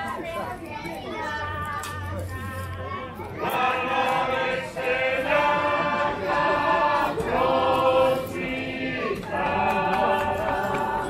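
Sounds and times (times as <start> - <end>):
group singing unaccompanied: 3.4 - 11.0.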